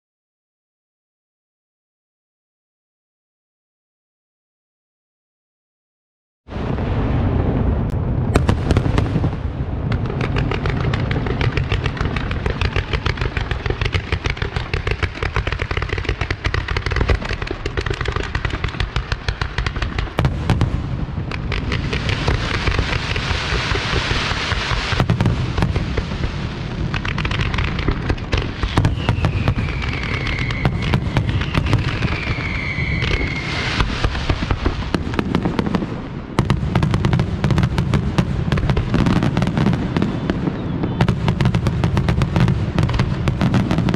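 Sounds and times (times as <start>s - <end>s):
fireworks bursting and crackling: 6.5s - 43.9s
falling firework whistles: 28.4s - 35.0s, 39.0s - 42.5s.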